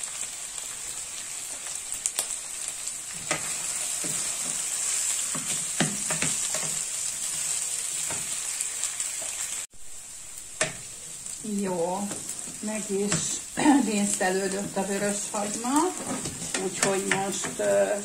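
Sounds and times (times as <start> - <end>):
onion sizzling in oil: 0.0 - 18.0
wooden spoon scraping pan: 12.1 - 17.8.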